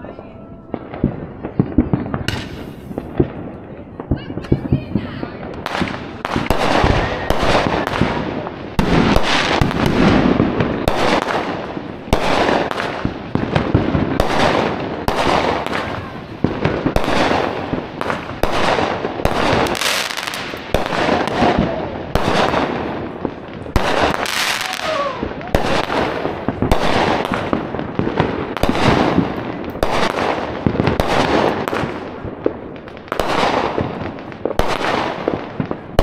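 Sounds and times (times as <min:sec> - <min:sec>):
fireworks bangs: 0:00.0 - 0:36.0
fireworks crackle and hiss: 0:00.0 - 0:36.0.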